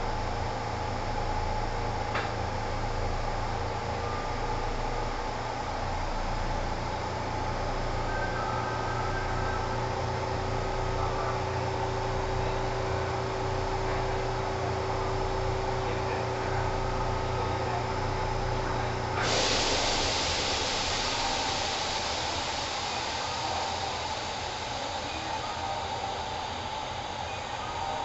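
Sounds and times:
train wheels rumbling on rail: 0:00.0 - 0:28.0
loud rushing hiss: 0:19.2 - 0:28.0.

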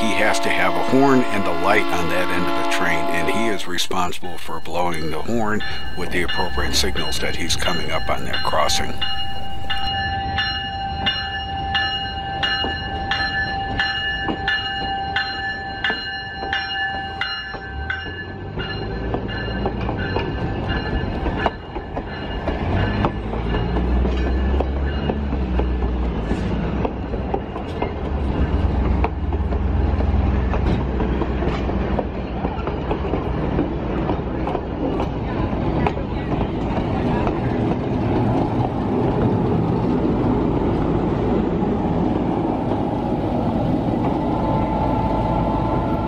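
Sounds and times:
train bell ringing: 0:00.0 - 0:37.8
diesel locomotive rumble: 0:00.0 - 0:46.0
train wheel clicks: 0:14.2 - 0:39.4.

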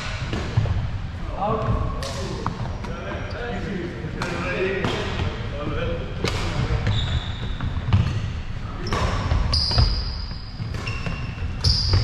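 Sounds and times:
shoes squeaking: 0:06.8 - 0:12.0.

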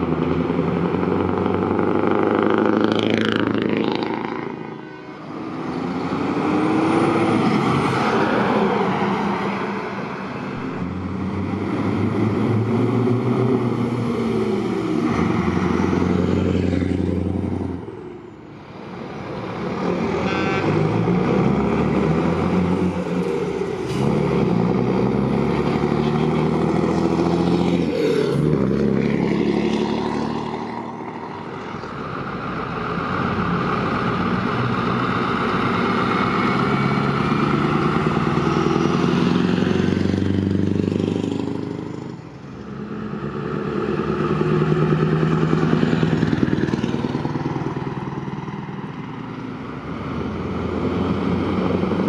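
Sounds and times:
diesel trucks passing: 0:00.0 - 0:52.0.

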